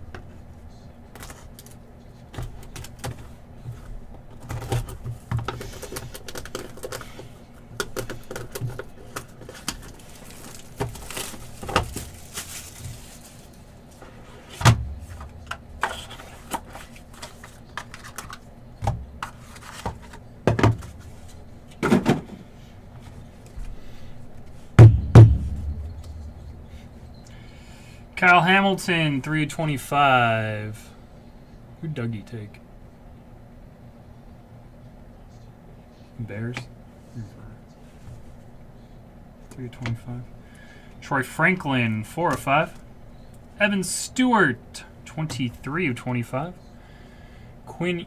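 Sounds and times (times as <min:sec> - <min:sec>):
cards rustling and clicking: 0:01.1 - 0:13.6, 0:15.1 - 0:18.4, 0:19.2 - 0:20.2
crinkly hiss of wrapper: 0:10.0 - 0:13.6.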